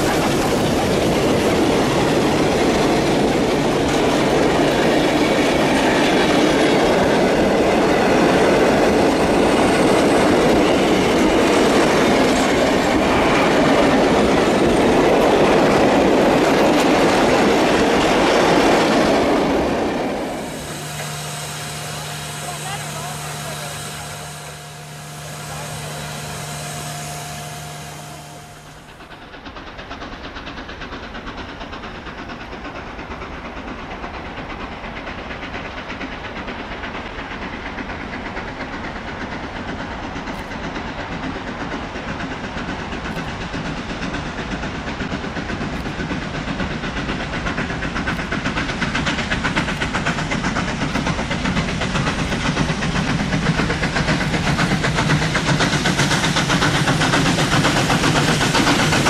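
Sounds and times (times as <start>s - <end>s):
steady rushing hiss: 0.0s - 59.0s.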